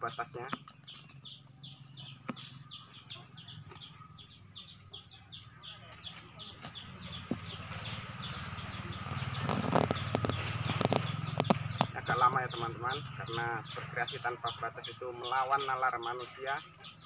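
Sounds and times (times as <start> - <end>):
small bird chirping: 0.0 - 17.0
leaves rustling and snipping: 9.3 - 12.0.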